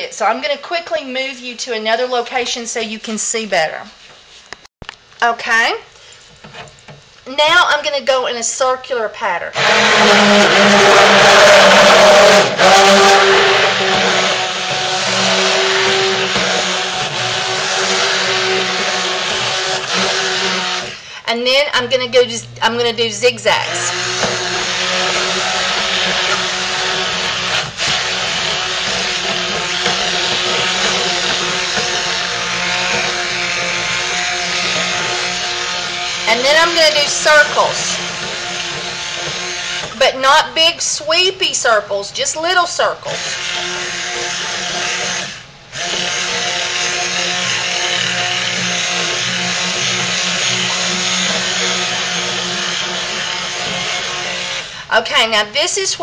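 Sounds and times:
stick blender motor whining: 9.6s - 21.2s, 21.8s - 40.0s, 43.0s - 54.8s.

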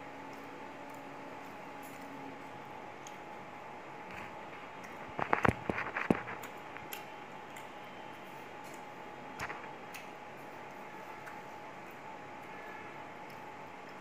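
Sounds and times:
faint steady hum: 0.0s - 14.0s
person chewing food: 0.2s - 3.4s, 4.0s - 14.0s
sharp clicks and smacks: 4.0s - 7.8s, 8.6s - 12.5s.

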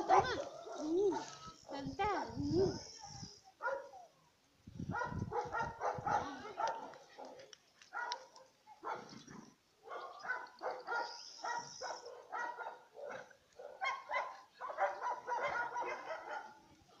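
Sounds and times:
dog barking and yipping: 3.6s - 4.0s, 4.9s - 9.1s, 9.8s - 16.6s.

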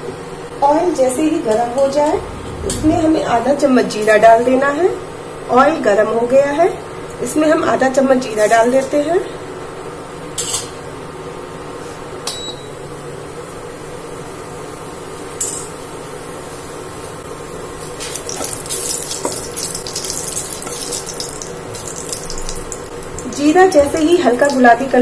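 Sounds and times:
seeds sizzling in hot oil: 17.8s - 23.6s.

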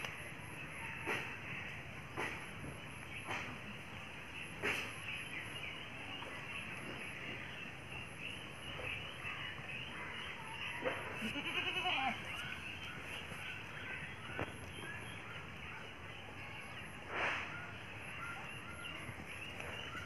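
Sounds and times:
goat bleating: 11.2s - 12.4s.

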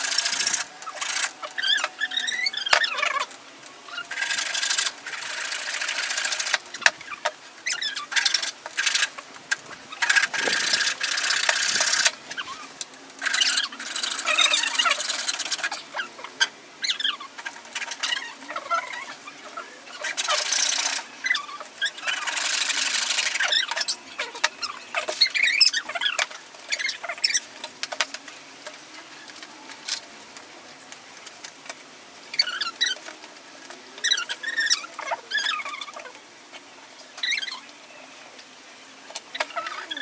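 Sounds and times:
wood squeaking and scraping: 0.0s - 27.5s.

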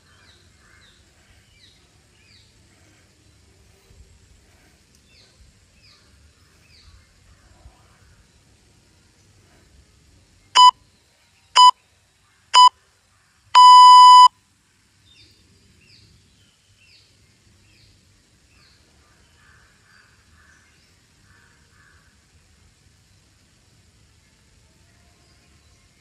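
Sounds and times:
electronic timer beeps: 10.6s - 10.8s, 13.6s - 14.3s.

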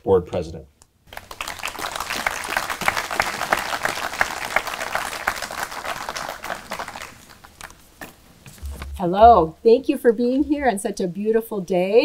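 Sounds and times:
audience applauding: 1.1s - 7.8s.

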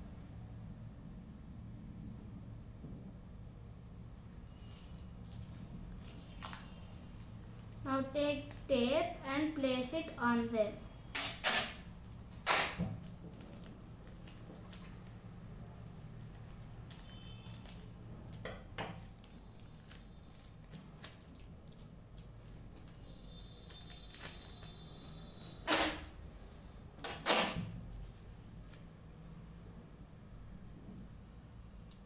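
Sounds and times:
plastic tape crackling: 4.3s - 8.7s, 11.1s - 15.2s, 16.2s - 18.4s, 19.0s - 26.2s, 27.0s - 29.4s
tape pulled off roll: 12.4s - 13.2s, 25.6s - 26.1s, 27.0s - 28.2s.

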